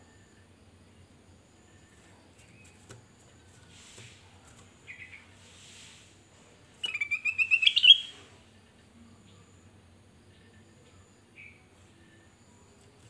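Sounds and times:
bird chirping rapidly: 6.8s - 8.2s
bird singing: 6.8s - 8.2s, 10.3s - 12.2s.

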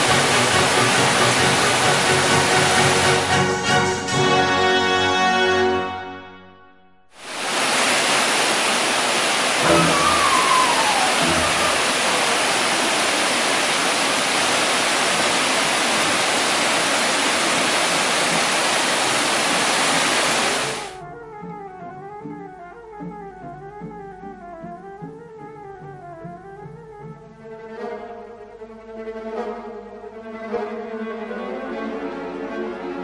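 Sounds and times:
water cascading over rocks: 0.0s - 3.4s, 7.2s - 21.0s
music: 0.0s - 7.1s, 9.6s - 11.8s, 20.9s - 33.0s.

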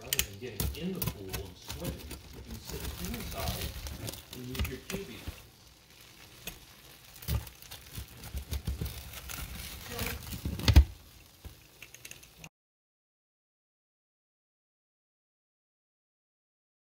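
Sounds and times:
pizza wheel crunching crust: 0.0s - 12.5s.

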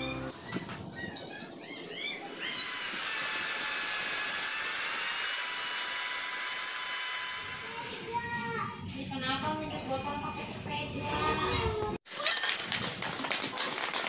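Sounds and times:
angle grinder cutting wire: 1.9s - 8.2s.

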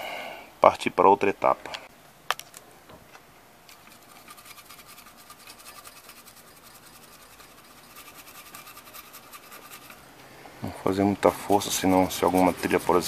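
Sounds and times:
brush scrubbing circuit board: 3.7s - 10.0s, 11.2s - 13.0s.

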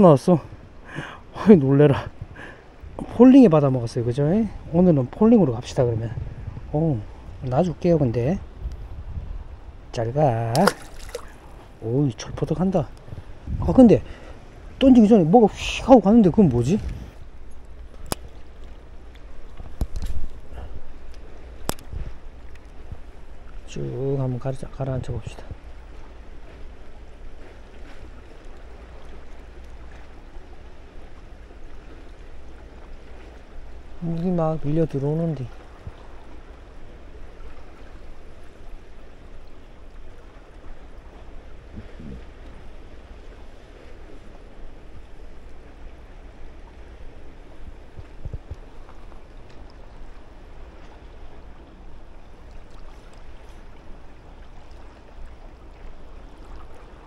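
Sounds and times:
sea water lapping on concrete: 10.1s - 57.0s
faint ticks: 16.4s - 23.6s.

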